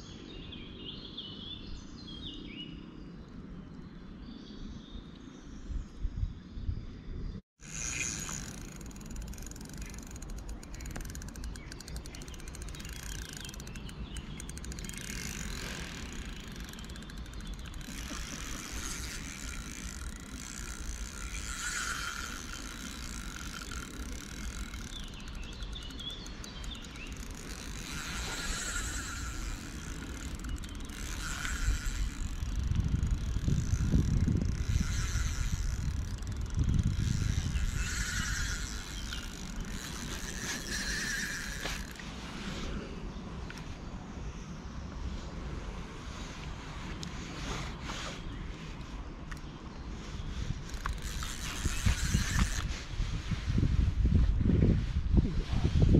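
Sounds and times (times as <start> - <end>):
birds calling: 7.6 - 42.1
fishing reel ticking: 7.6 - 42.2, 50.2 - 52.8.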